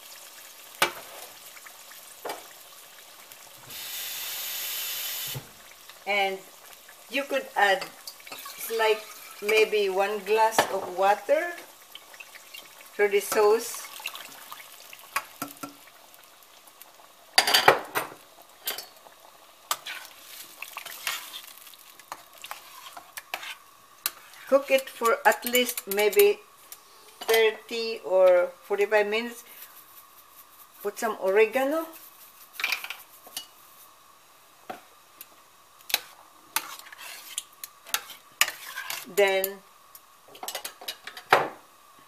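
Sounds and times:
light sizzle: 0:00.0 - 0:42.0
metal spoon scraping a pot: 0:22.4 - 0:24.5, 0:36.6 - 0:39.1.

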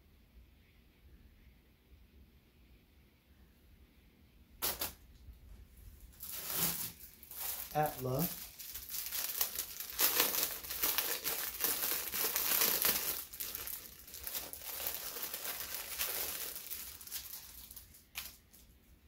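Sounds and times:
plastic bag crinkling: 0:06.0 - 0:18.8.

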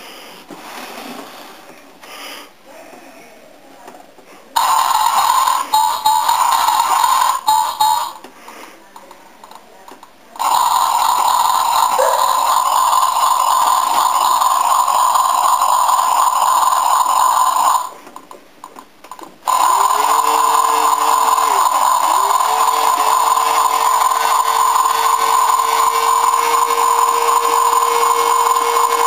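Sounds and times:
buzzy toy drone: 0:04.6 - 0:08.2, 0:10.4 - 0:18.0, 0:19.5 - 0:29.0.

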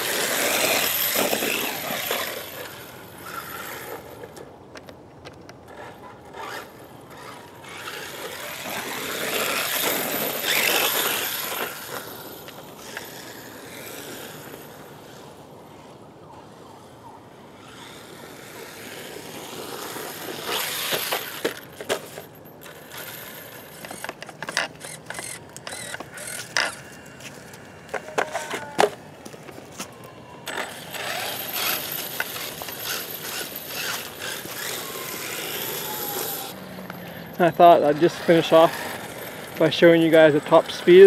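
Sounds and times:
electric motor whine: 0:06.4 - 0:15.4, 0:22.8 - 0:28.9, 0:30.0 - 0:40.0
toy car knocking and clattering: 0:19.5 - 0:26.8, 0:27.9 - 0:29.0, 0:30.4 - 0:36.5.

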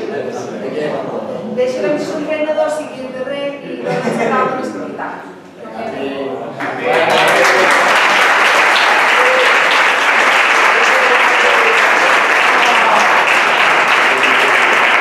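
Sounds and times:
audience clapping: 0:06.6 - 0:15.0.

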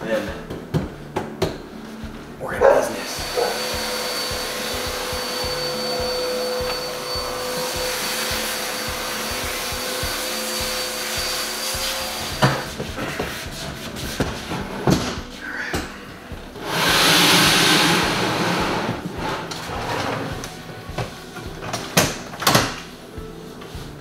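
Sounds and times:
vacuum cleaner running: 0:02.5 - 0:15.4, 0:16.3 - 0:21.8.

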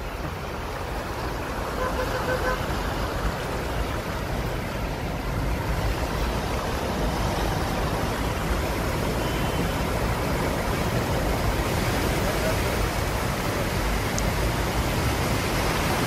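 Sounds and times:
vehicle engines running low: 0:00.0 - 0:16.0.

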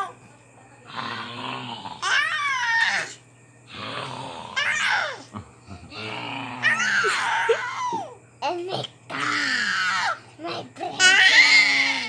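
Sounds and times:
children laughing and squealing: 0:06.6 - 0:08.2.

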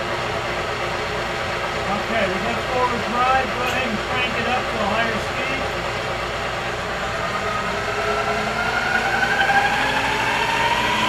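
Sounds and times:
machine hum: 0:00.0 - 0:11.0
spindle whine rising in pitch: 0:00.0 - 0:11.0.

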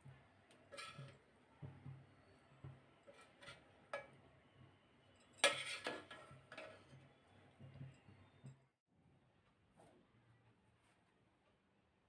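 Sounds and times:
spoon scraping metal pot: 0:00.6 - 0:01.3, 0:03.0 - 0:04.2, 0:05.3 - 0:07.0.

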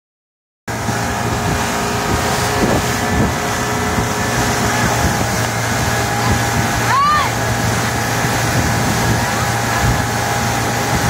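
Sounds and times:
motorboat engine running: 0:00.7 - 0:11.0
wind buffeting microphone: 0:00.7 - 0:11.0.

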